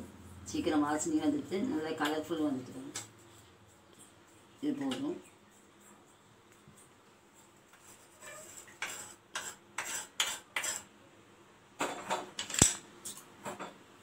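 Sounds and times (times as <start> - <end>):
metal spoon scraping a pan: 7.8 - 11.0.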